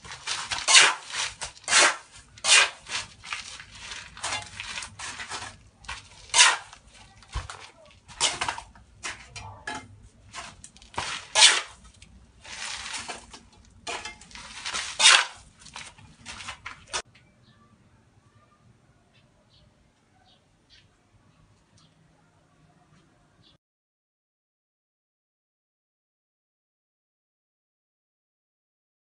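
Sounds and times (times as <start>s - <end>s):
trowel scraping mortar: 0.0s - 17.0s.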